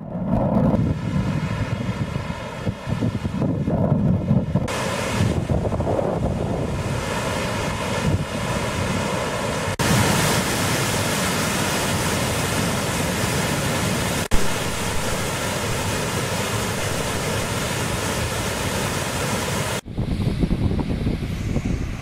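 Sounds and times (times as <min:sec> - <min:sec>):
floodwater rushing through spillway: 0:04.7 - 0:19.8.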